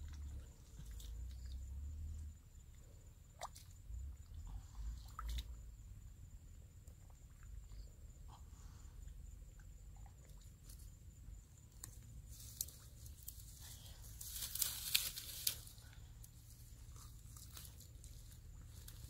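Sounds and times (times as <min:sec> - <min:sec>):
dry grass rustling: 0:11.8 - 0:19.0.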